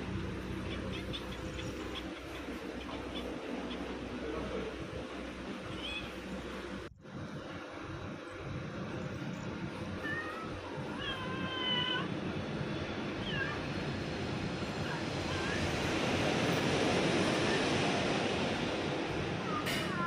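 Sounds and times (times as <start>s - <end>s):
cat meowing: 5.7s - 6.2s, 10.0s - 12.1s.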